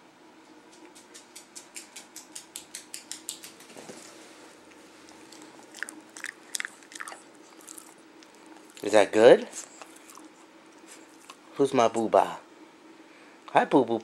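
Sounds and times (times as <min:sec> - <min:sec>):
dog crunching a treat: 0:00.8 - 0:03.8, 0:04.6 - 0:11.6.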